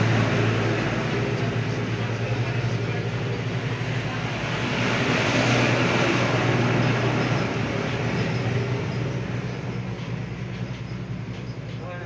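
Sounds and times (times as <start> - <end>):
wash of noise: 0.0 - 8.9
engine humming: 0.0 - 12.0.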